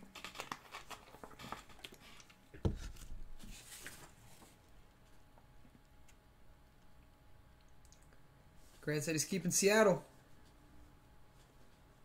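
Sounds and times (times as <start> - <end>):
paper crackling and rustling: 0.0 - 4.7.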